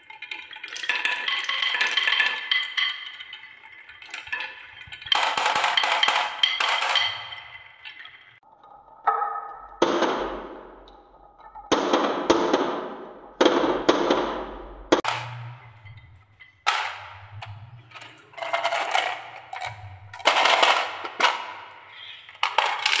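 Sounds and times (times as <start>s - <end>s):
marbles clattering into plastic truck: 0.0s - 8.4s, 15.0s - 16.1s, 16.7s - 23.0s
marbles rolling on wooden track: 0.0s - 8.4s, 15.0s - 23.0s.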